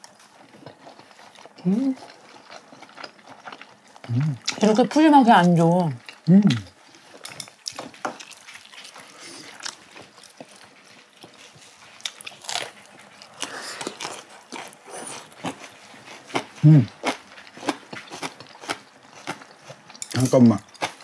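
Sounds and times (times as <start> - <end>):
people chewing and crunching: 0.0 - 21.0
person humming: 4.1 - 4.4, 6.3 - 6.7, 16.6 - 16.9.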